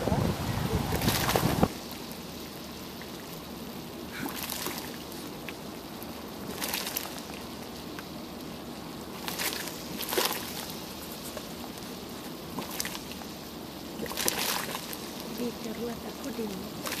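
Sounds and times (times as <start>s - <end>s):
wind noise: 0.0s - 1.8s
mud pool bubbling: 0.0s - 17.0s.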